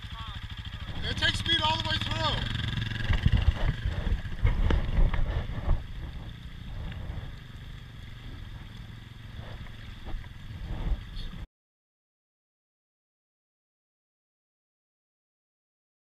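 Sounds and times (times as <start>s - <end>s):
creek water flowing: 0.3s - 11.4s
heavy bumps: 0.8s - 11.4s.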